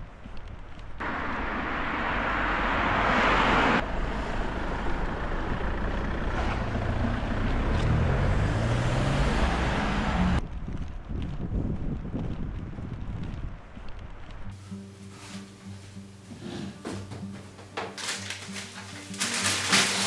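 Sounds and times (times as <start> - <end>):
vehicle passing: 1.0 - 11.1
engine accelerating: 1.0 - 11.5.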